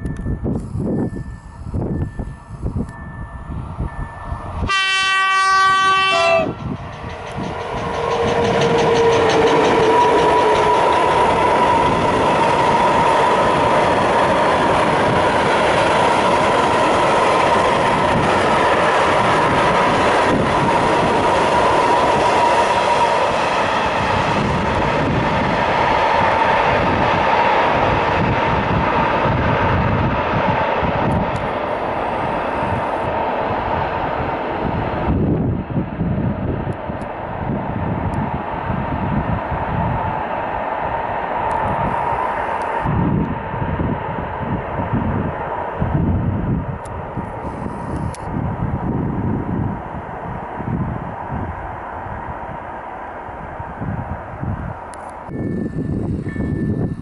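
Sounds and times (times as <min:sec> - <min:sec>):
locomotive horn blast: 0:04.6 - 0:06.6
train wheels on rails: 0:05.7 - 0:57.0.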